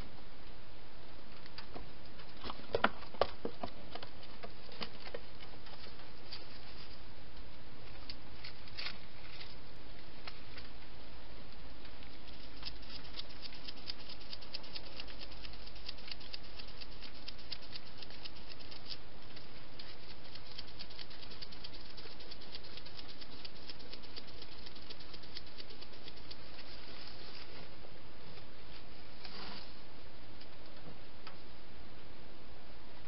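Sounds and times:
steady hiss: 4.2 - 33.0
hedgehog rustling in dry leaves: 5.7 - 7.1, 12.0 - 27.8.

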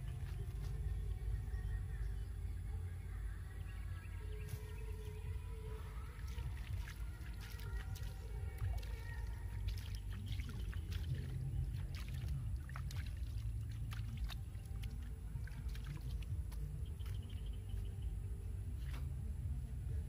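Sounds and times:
steady low rumble: 0.0 - 20.0
hands rustling dry grass and soil: 4.4 - 17.9.

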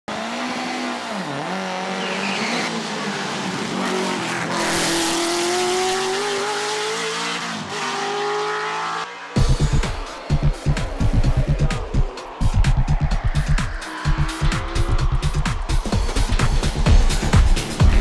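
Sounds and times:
racing car engine at high revs: 0.1 - 12.4, 13.0 - 18.0
rush of noise: 9.7 - 16.8.

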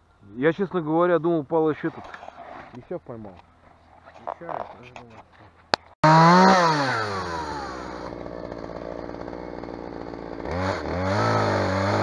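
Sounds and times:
chainsaw cutting wood: 6.0 - 12.0.

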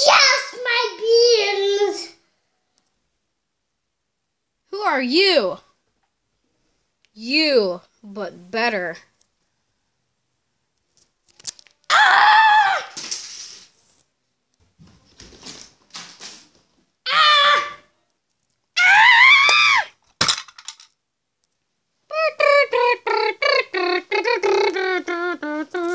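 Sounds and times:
person screaming: 11.9 - 13.0, 17.1 - 17.9, 18.8 - 19.9.

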